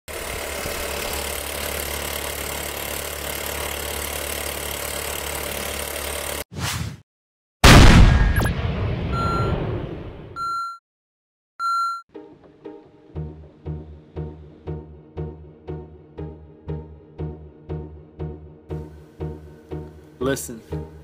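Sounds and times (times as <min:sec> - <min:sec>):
film projector whirring: 0:00.1 - 0:06.4
heavy rumbling boom impact: 0:07.6 - 0:10.2
short high beep: 0:09.1 - 0:09.6, 0:10.4 - 0:10.8, 0:11.6 - 0:12.0.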